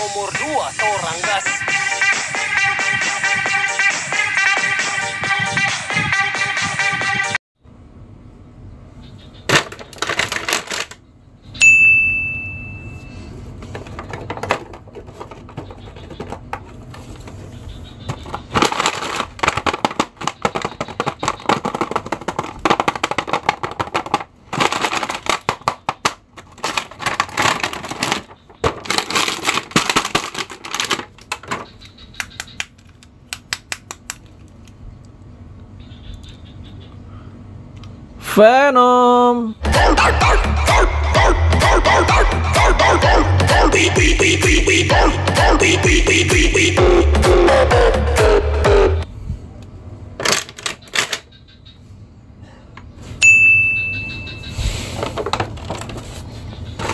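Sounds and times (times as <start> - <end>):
dance music: 0.0 - 7.4, 38.4 - 49.0
packaging crinkling: 18.2 - 31.7.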